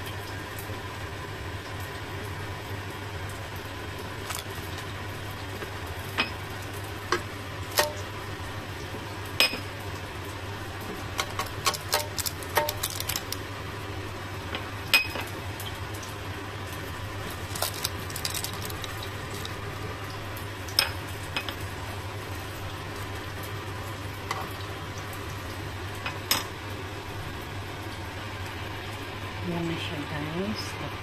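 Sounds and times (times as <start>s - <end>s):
chicken wings sizzling: 0.0s - 31.0s
low steady hum: 0.0s - 31.0s
metal utensil clinking on basket: 11.2s - 13.4s, 17.5s - 19.6s.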